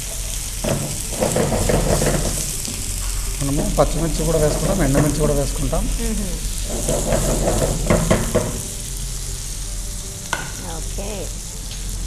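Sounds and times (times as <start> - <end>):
meat sizzling in oil: 0.0 - 12.0
spatula scraping a pan: 0.6 - 3.1, 6.5 - 8.8.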